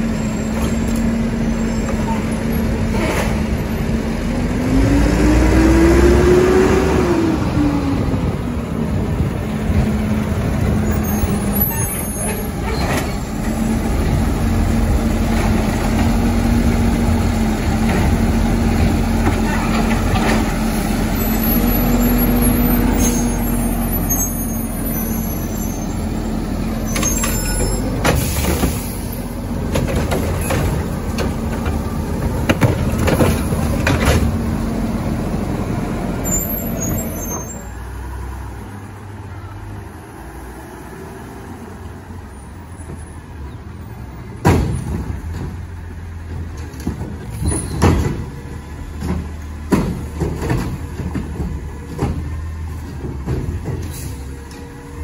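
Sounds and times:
garbage truck engines running: 0.0 - 55.0
plastic carts clanking and banging: 29.6 - 34.4, 44.4 - 54.6.

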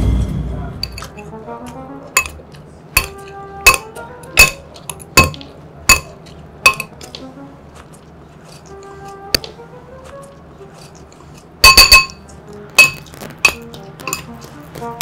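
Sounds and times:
metal spoon clinking ceramic bowl: 2.2 - 2.4, 3.0 - 7.0, 11.6 - 12.2, 12.8 - 14.4.

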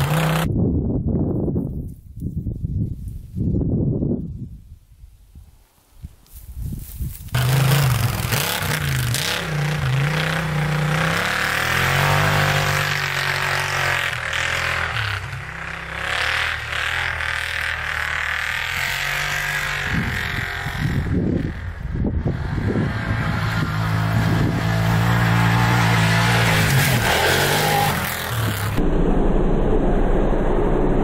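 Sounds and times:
engine revving hard: 0.0 - 0.5, 7.4 - 28.8.

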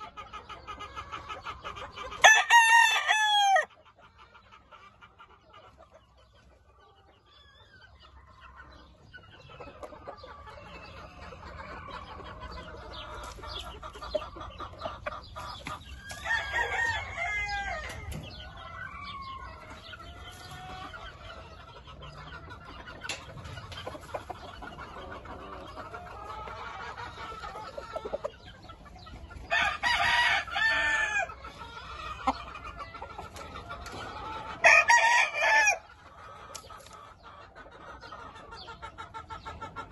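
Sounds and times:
chickens clucking: 0.0 - 39.9
roosters crowing: 2.0 - 3.8, 15.3 - 21.6, 29.3 - 36.6.

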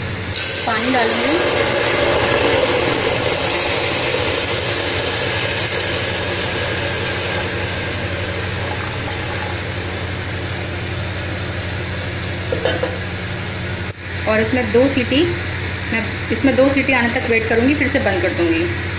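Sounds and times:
water hissing in hot pot: 0.3 - 11.1.

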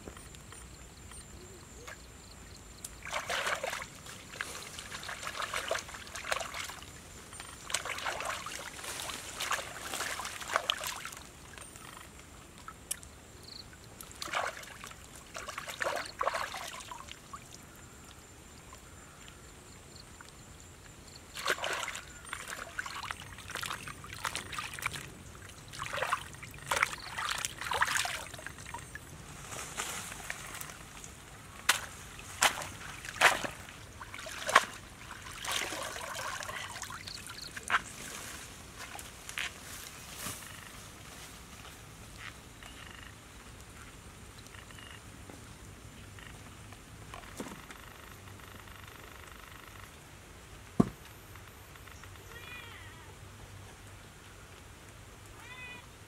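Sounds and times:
shallow water splashing: 3.0 - 12.0, 13.8 - 17.8, 21.3 - 29.1, 30.0 - 39.0.

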